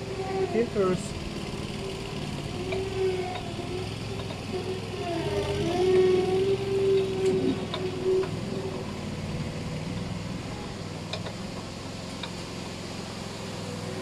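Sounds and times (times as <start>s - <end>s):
low engine drone: 0.0s - 14.0s
parts clicking and tapping: 4.2s - 4.6s, 11.1s - 12.5s.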